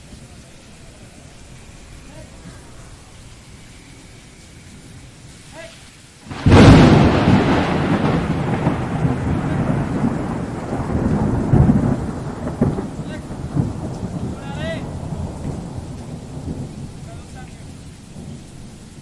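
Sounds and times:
thunder crack and rumble: 0:06.3 - 0:19.0.

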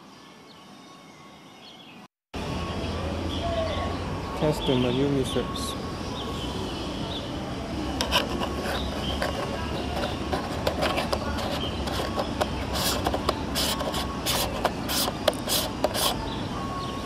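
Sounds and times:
short rubbing scrapes: 0:08.0 - 0:16.2.

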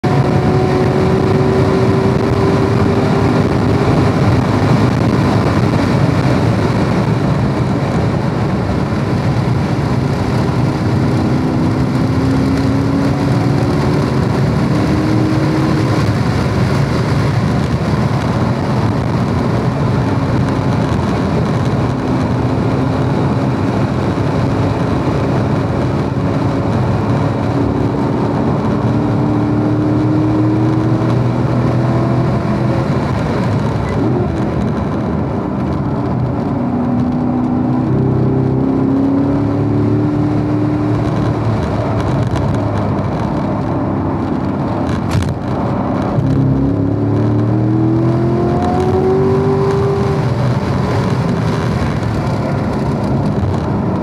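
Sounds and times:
sports car engine accelerating: 0:00.0 - 0:54.0
wind and road noise: 0:00.0 - 0:54.0.

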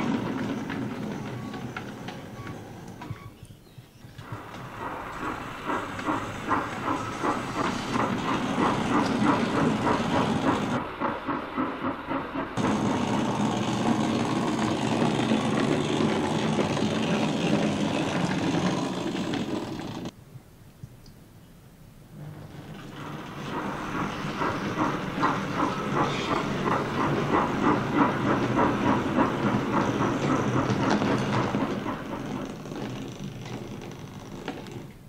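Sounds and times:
steam locomotive chuffing: 0:00.0 - 0:03.2, 0:04.2 - 0:20.1, 0:22.2 - 0:34.2
steam hissing: 0:04.2 - 0:20.1, 0:22.7 - 0:32.6.

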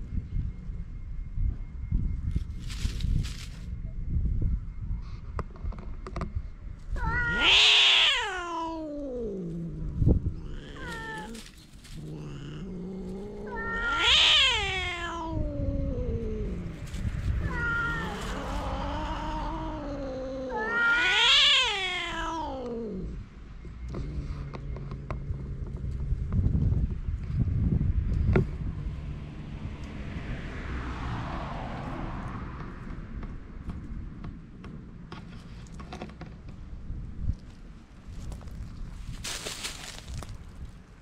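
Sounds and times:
cats yowling: 0:07.0 - 0:23.2.

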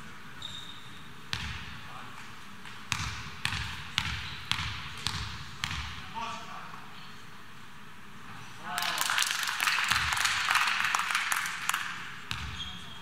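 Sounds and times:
basketball bouncing: 0:01.3 - 0:01.6, 0:02.9 - 0:06.0, 0:12.3 - 0:12.7.

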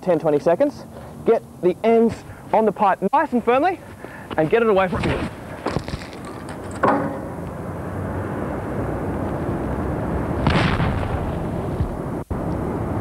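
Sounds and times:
steady low rumble: 0:07.3 - 0:13.0
pipe bomb explosion bang: 0:10.4 - 0:12.0.

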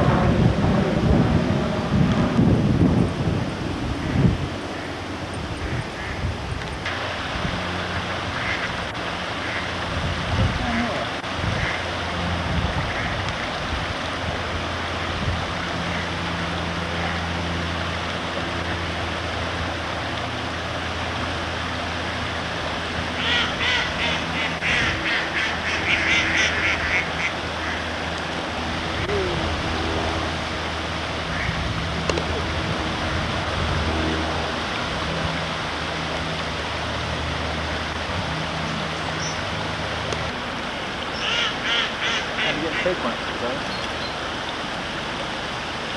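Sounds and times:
water rushing through sluices: 0:00.0 - 0:45.9
ducks quacking: 0:05.6 - 0:06.3, 0:08.3 - 0:09.8, 0:10.6 - 0:11.9, 0:12.8 - 0:13.2, 0:23.2 - 0:28.0, 0:31.3 - 0:32.6, 0:41.1 - 0:43.6.

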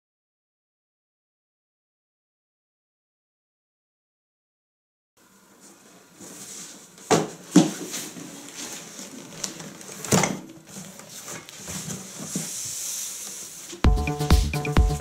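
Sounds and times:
cardboard rustling: 0:05.6 - 0:13.8.

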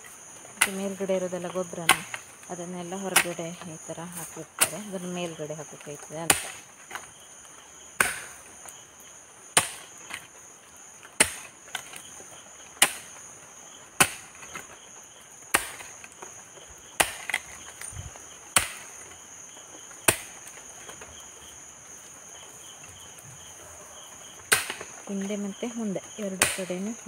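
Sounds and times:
high-pitched insect hum: 0:00.0 - 0:27.0
hoe chopping into soft earth: 0:06.3 - 0:07.0, 0:08.0 - 0:08.5, 0:09.6 - 0:10.2, 0:11.2 - 0:12.0, 0:12.8 - 0:13.2, 0:14.0 - 0:14.7, 0:15.5 - 0:16.0, 0:17.0 - 0:19.0, 0:20.0 - 0:20.5, 0:24.5 - 0:24.9.

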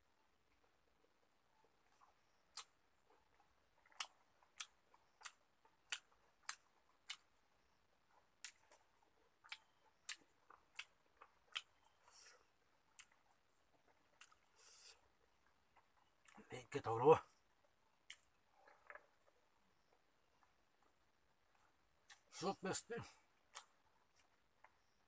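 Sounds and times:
man chewing with mouth smacks: 0:00.5 - 0:16.5, 0:17.3 - 0:22.4, 0:23.0 - 0:25.0.

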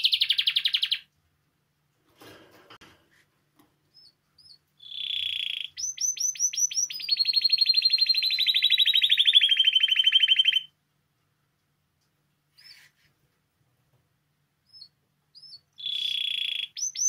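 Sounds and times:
canary singing trills: 0:00.0 - 0:01.1, 0:03.9 - 0:10.7, 0:12.5 - 0:13.0, 0:14.6 - 0:17.0.

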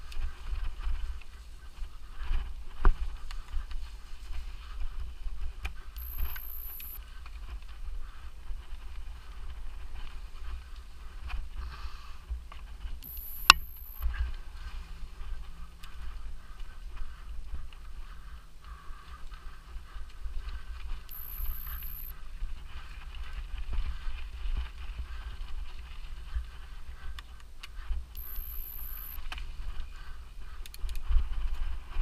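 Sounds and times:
short high-pitched whine: 0:06.0 - 0:07.0, 0:13.0 - 0:14.0, 0:21.1 - 0:22.1, 0:28.2 - 0:29.2.

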